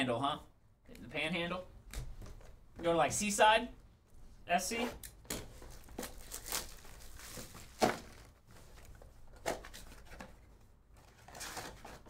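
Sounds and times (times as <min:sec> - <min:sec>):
cardboard and wrapper rustling: 0:05.4 - 0:12.0.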